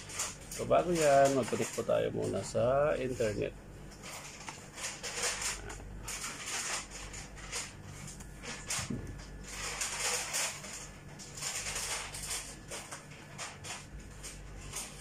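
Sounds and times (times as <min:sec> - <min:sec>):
rustling: 0:04.0 - 0:15.0.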